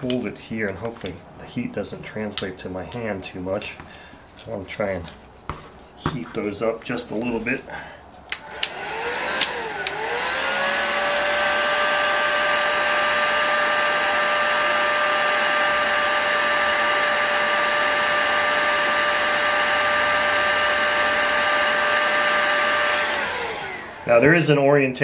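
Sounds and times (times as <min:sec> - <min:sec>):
heat gun clicks: 0:08.3 - 0:10.1, 0:22.8 - 0:24.1
heat gun fan whine: 0:08.3 - 0:24.6.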